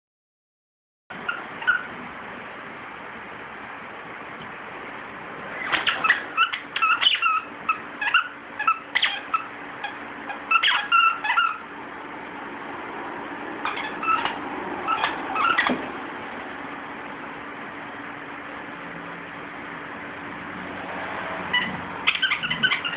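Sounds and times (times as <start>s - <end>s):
dog toy squeaking: 1.2s - 2.0s, 5.6s - 11.7s, 13.6s - 15.8s, 21.5s - 22.9s.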